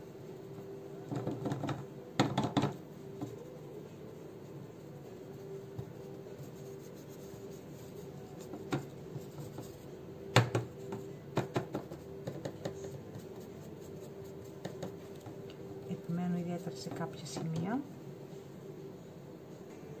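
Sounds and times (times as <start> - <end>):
faint steady hum: 0.0 - 20.0
paintbrush scratching and dabbing: 4.7 - 10.0, 12.8 - 15.2.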